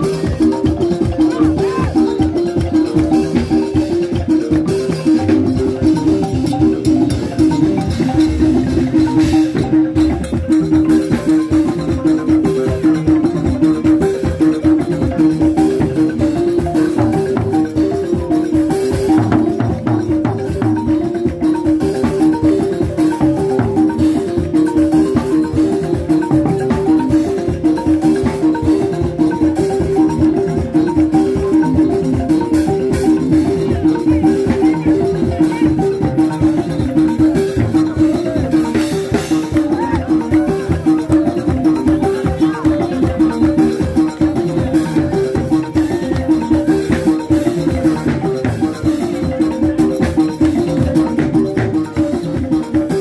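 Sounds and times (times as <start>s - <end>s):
balafons playing: 0.0s - 53.0s
drums keeping a beat: 0.0s - 53.0s.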